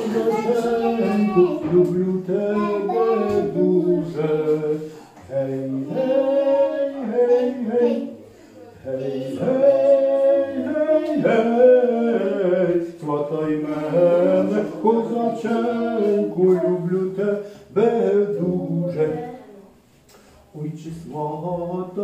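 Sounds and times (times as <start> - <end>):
voices singing unaccompanied: 0.0 - 19.6, 20.6 - 22.0
singer breathing: 4.8 - 5.2, 8.2 - 8.8.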